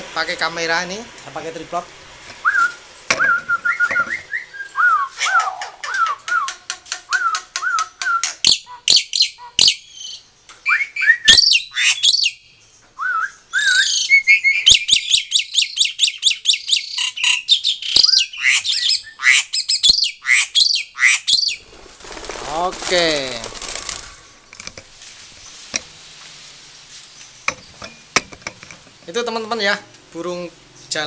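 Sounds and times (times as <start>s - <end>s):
bird singing whistles and rasps: 2.4s - 21.7s.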